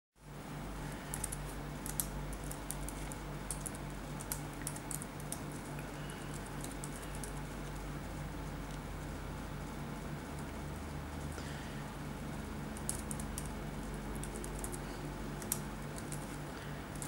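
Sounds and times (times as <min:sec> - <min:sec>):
steady low hum: 0:00.2 - 0:17.0
computer keyboard keys clicking: 0:01.1 - 0:07.8, 0:12.7 - 0:14.8, 0:15.4 - 0:17.0.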